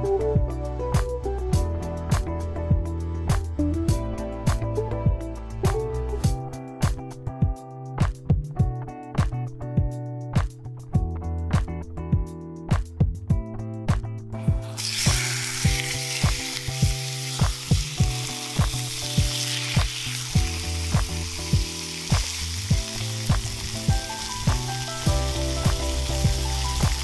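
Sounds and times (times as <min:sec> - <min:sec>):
background music with even beat: 0:00.0 - 0:27.0
beef sizzling in a pan: 0:14.6 - 0:27.0.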